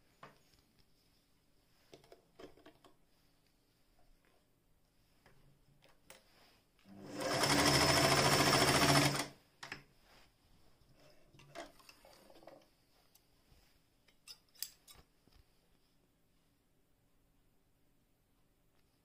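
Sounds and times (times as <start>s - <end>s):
light clicks and handling noises: 1.8s - 6.9s, 10.8s - 16.0s
sewing machine stitching: 6.9s - 9.4s.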